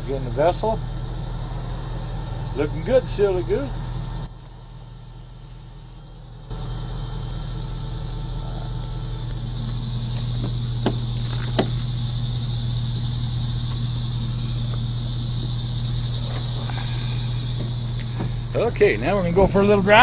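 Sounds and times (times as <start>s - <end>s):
truck engine idling: 0.0s - 20.0s
high steady hiss: 6.5s - 20.0s.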